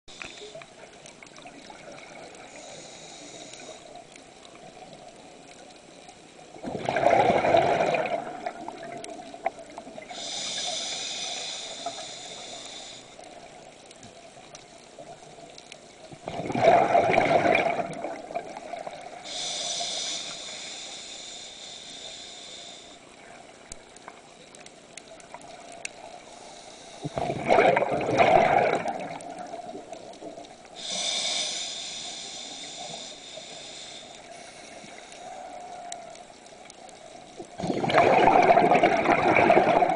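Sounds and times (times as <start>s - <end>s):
regulator inhalation hiss: 2.4s - 4.0s, 10.0s - 13.4s, 19.1s - 23.2s, 26.0s - 27.2s, 30.7s - 36.1s
exhaled bubbles rushing: 6.6s - 10.0s, 16.2s - 19.1s, 27.2s - 30.4s, 37.5s - 39.9s.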